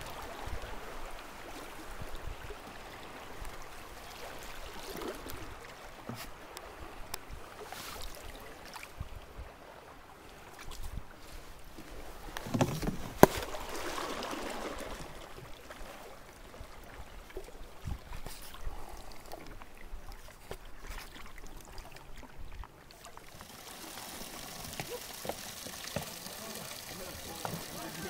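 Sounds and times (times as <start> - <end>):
water swishing around paddle: 0.0 - 28.0
knocks on canoe: 12.4 - 13.6
steady hiss: 23.4 - 28.0.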